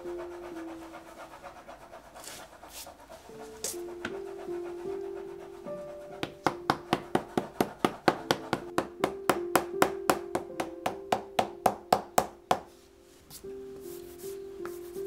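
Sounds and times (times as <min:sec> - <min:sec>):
hammer tapping leather: 0:06.2 - 0:12.7.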